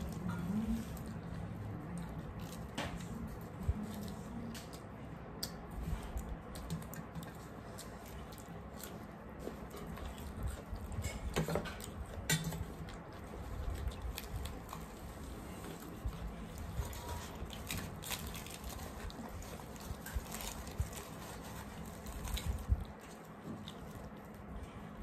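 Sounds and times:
chewing: 0.0s - 25.0s
fried bread crackling as torn: 13.7s - 24.1s.

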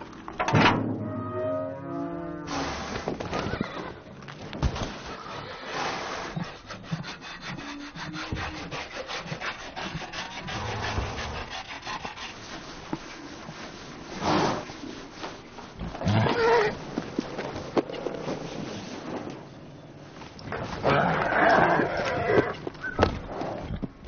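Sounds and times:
brush rubbing horse coat: 4.9s - 15.9s, 18.2s - 19.3s.

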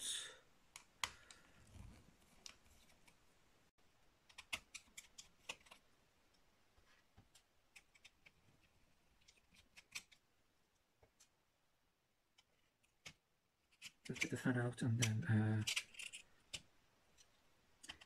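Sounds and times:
small clicks and taps of tools: 15.0s - 18.0s.

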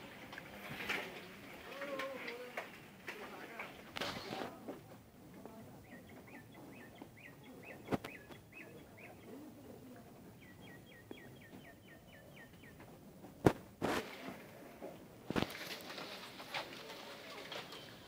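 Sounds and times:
small bird chirping: 5.8s - 9.4s.

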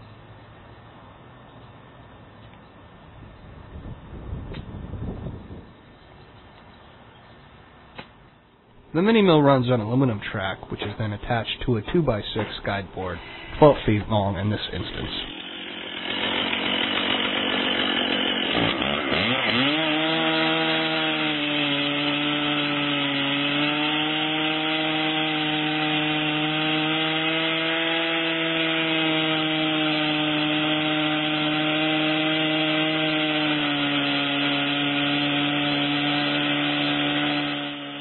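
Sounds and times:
chainsaw cutting log: 8.9s - 38.0s.

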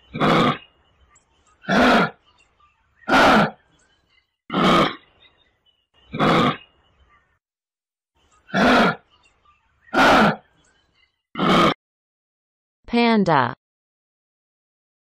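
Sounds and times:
kangaroo grunting: 0.1s - 0.7s, 1.6s - 2.2s, 3.1s - 3.6s, 4.5s - 5.1s, 6.1s - 6.7s, 8.5s - 9.1s, 9.9s - 10.5s, 11.4s - 11.8s.

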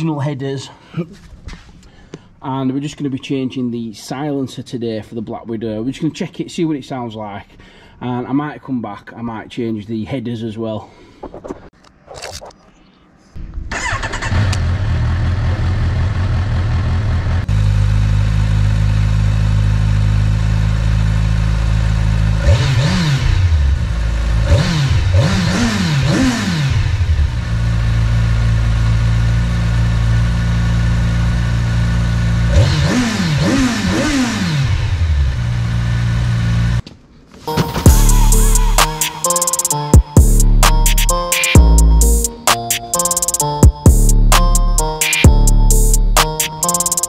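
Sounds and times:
motorcycle engine starting and idling: 13.5s - 36.8s.

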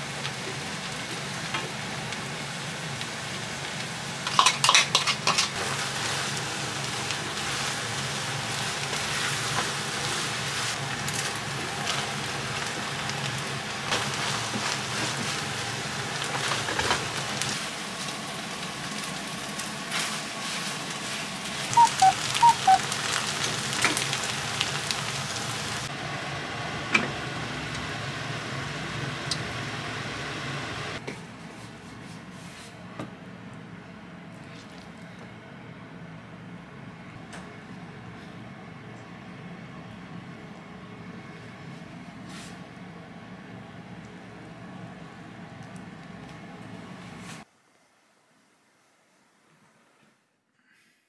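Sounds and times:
food sizzling in a frying pan: 0.0s - 31.0s.

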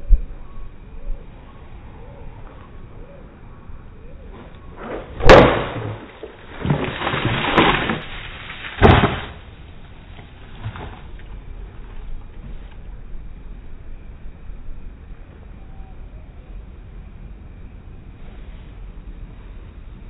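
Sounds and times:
bat hitting water jug: 5.2s - 8.0s, 8.8s - 9.4s.

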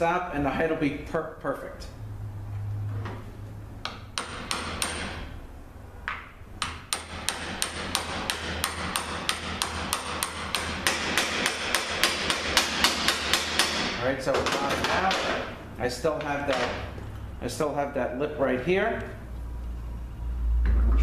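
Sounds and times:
hammer tapping metal: 3.8s - 5.3s, 6.1s - 17.0s.

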